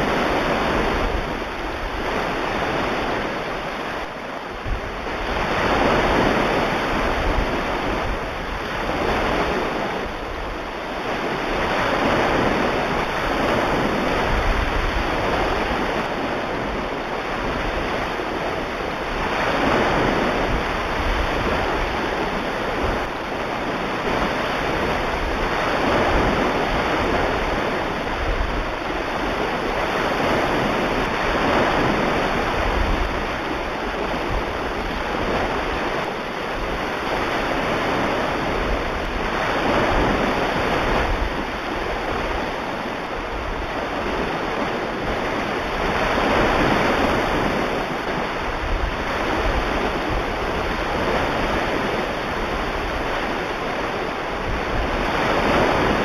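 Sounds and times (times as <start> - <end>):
ocean waves breaking: 0.0 - 56.0.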